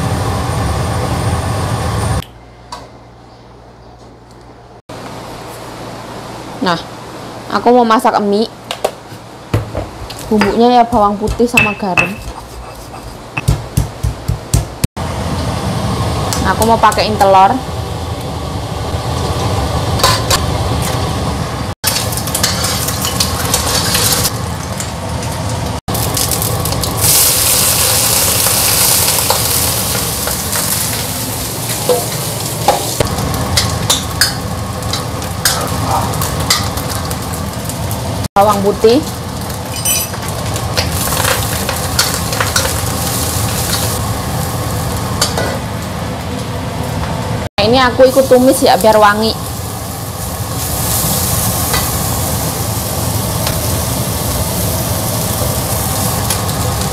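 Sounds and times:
egg sizzling in hot oil: 21.8s - 35.5s, 39.1s - 45.3s, 48.0s - 56.9s
metal spatula scraping wok: 22.4s - 24.3s.

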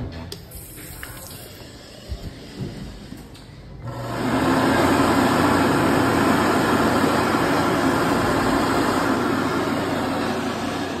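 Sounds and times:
electric hand dryer running: 3.8s - 11.0s.

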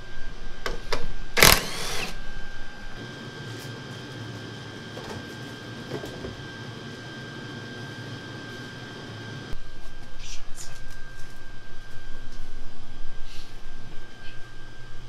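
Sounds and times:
heater hum and high whine: 0.0s - 15.0s
cordless drill whirring: 1.4s - 2.2s.

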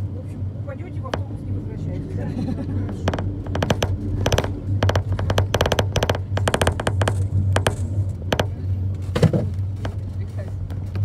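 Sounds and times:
vehicle engine hum: 0.0s - 11.0s
sharp rattling clicks: 2.9s - 8.6s.

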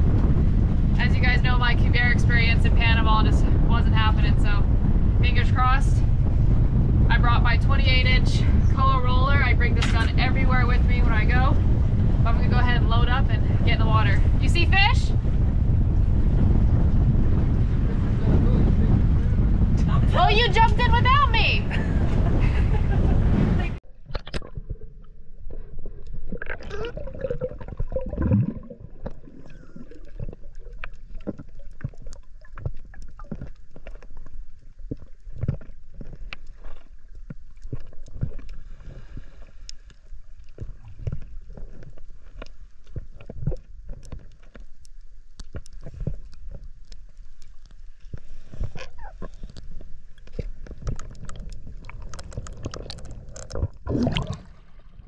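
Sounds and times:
low underwater rumble: 0.0s - 55.0s
gurgling bubbles: 23.9s - 39.5s, 48.6s - 55.0s
splashing: 24.0s - 44.8s, 45.4s - 55.0s.

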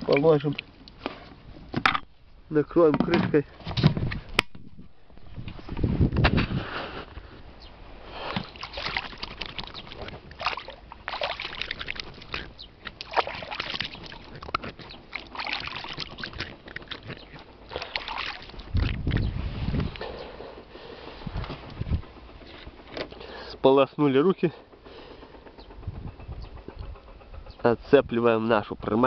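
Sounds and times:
hands splashing in water: 8.3s - 19.2s.

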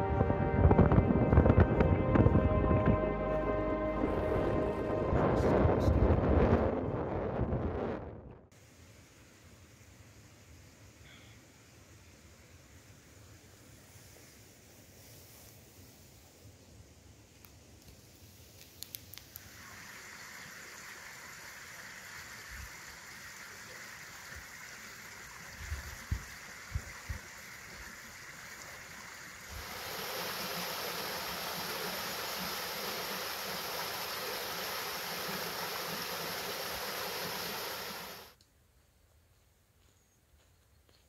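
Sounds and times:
stream flowing over stones: 18.8s - 38.4s
water splashing down rocky cascade: 19.2s - 38.4s.

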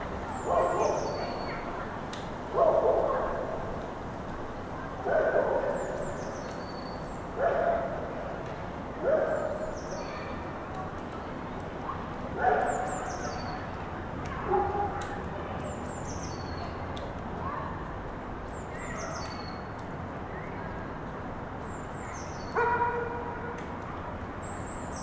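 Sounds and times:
small birds chirping: 0.3s - 1.7s, 9.1s - 10.4s, 12.4s - 13.8s, 15.6s - 16.8s, 18.5s - 20.7s, 21.6s - 22.7s.

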